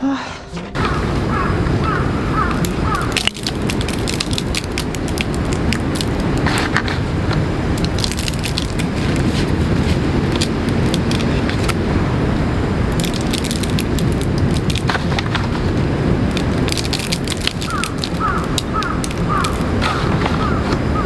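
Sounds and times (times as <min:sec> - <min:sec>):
wind buffeting microphone: 0:00.8 - 0:21.0.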